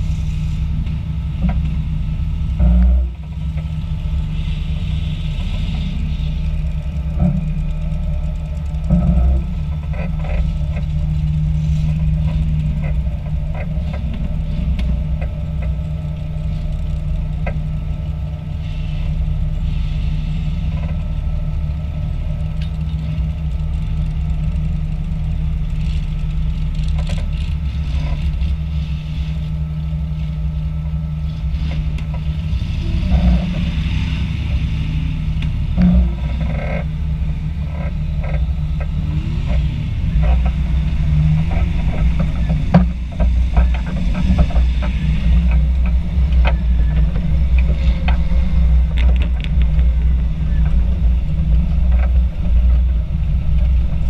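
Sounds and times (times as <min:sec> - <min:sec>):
car engine running: 0:00.0 - 0:54.0
knocks and rattles: 0:35.5 - 0:54.0.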